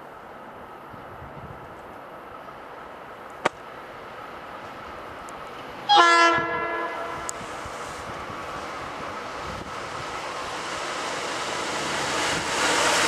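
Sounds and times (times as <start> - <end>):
train rumble: 0.0 - 13.0
train horn blast: 5.9 - 7.4.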